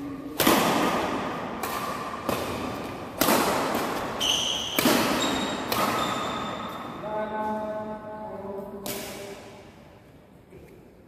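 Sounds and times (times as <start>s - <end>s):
rackets hitting shuttlecock: 0.3s - 7.0s, 8.8s - 9.5s.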